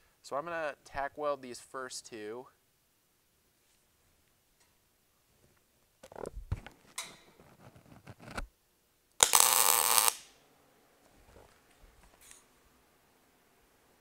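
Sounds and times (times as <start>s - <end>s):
welding arc crackling: 9.2s - 10.3s.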